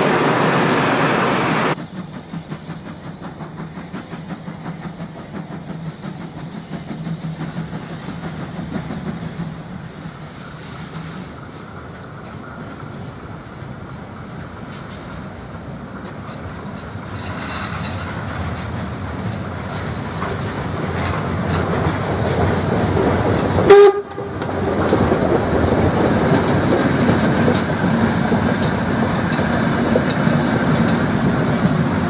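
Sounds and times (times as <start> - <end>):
steam locomotive passing: 0.0 - 32.0
locomotive whistle blast: 23.6 - 24.4.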